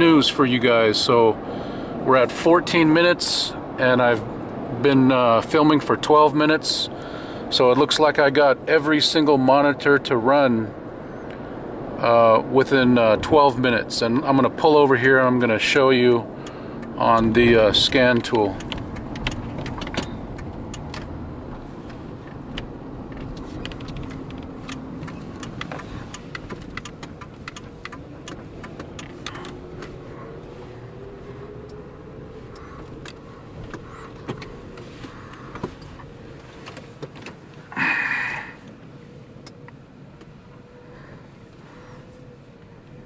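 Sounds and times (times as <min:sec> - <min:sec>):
road and engine noise: 0:00.0 - 0:43.0
small clicks and ticks: 0:18.1 - 0:21.1.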